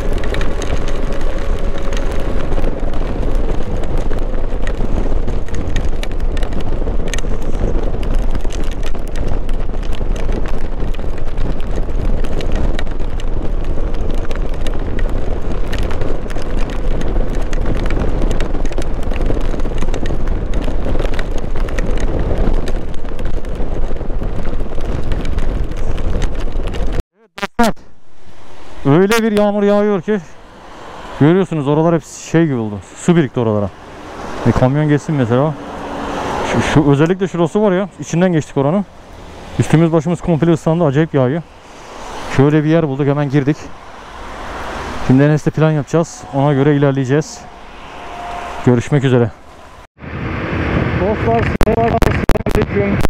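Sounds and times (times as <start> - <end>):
heavy rain: 0.0 - 27.0, 28.0 - 53.0
wind noise on microphone: 0.0 - 27.0, 27.8 - 53.0.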